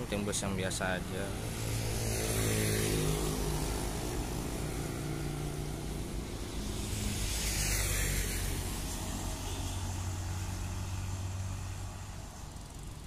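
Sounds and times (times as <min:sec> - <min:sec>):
motorcycles and cars passing: 0:00.0 - 0:13.0.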